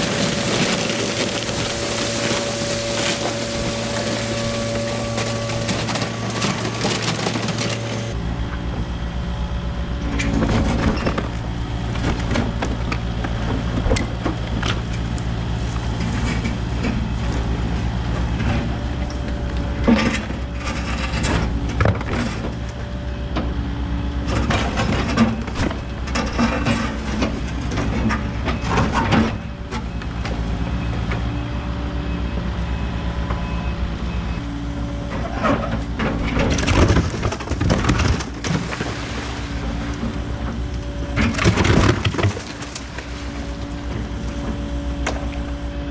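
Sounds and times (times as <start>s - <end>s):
concrete cracking and scraping: 0.0s - 8.2s, 41.2s - 43.1s
excavator diesel engine running: 0.0s - 45.9s.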